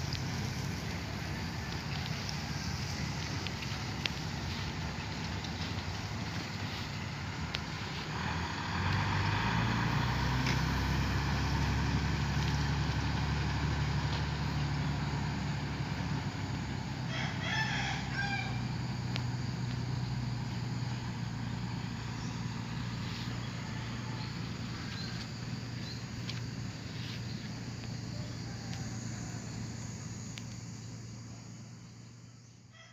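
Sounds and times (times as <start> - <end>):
truck diesel engine running: 0.0 - 32.4
rooster crowing: 17.0 - 18.9, 23.3 - 26.0, 28.0 - 30.2.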